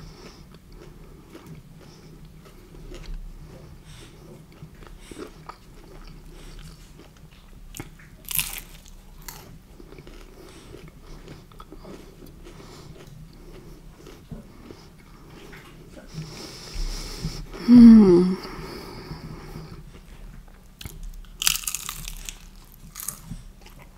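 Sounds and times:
close chewing clicks: 20.8s - 23.9s.

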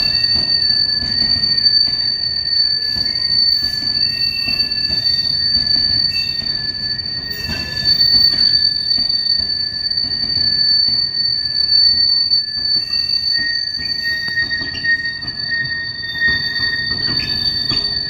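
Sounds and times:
freight wagon wheels squealing: 0.0s - 18.0s.

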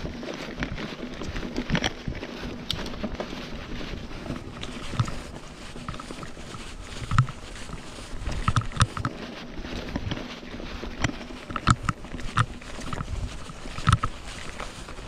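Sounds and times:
bike knocking and rattling: 0.0s - 15.0s
bike tyres rolling on dirt: 0.0s - 15.0s
wind on microphone: 0.0s - 15.0s.

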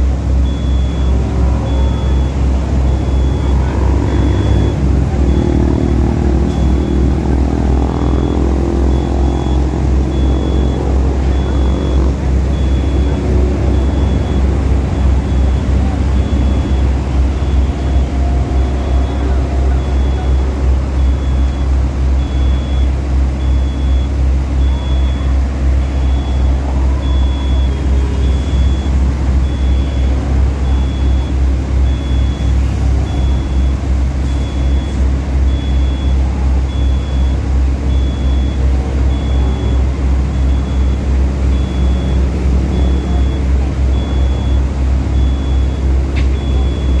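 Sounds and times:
heavy machine engine throbbing: 0.0s - 47.0s
high warning beep: 0.0s - 47.0s.

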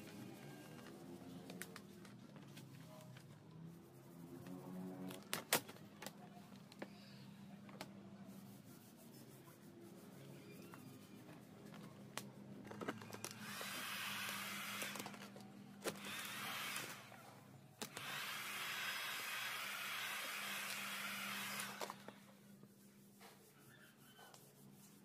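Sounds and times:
heat gun blowing: 13.4s - 15.2s, 15.9s - 17.1s, 17.9s - 22.1s.

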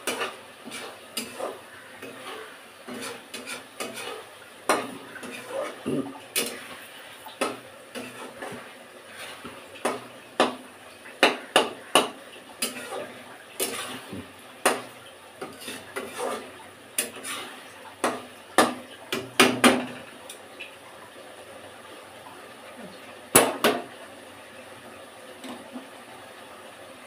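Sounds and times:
metal spoon scraping a pan: 0.0s - 10.6s, 11.2s - 19.2s.

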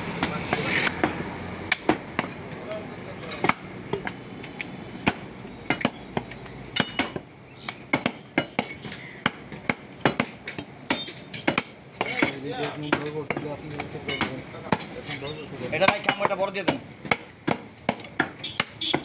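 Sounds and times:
cleaver chopping on wooden block: 3.4s - 4.2s, 5.0s - 14.9s, 15.8s - 19.0s.

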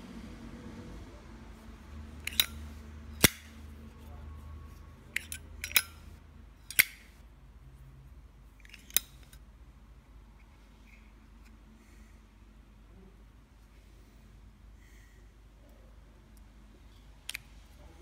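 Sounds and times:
metallic lighter clicks: 2.2s - 2.6s.

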